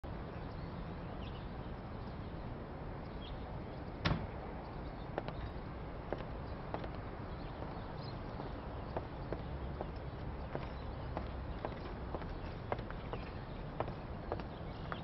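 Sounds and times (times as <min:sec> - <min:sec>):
outdoor background hiss: 0:00.1 - 0:15.0
footsteps on wooden deck: 0:05.1 - 0:15.0.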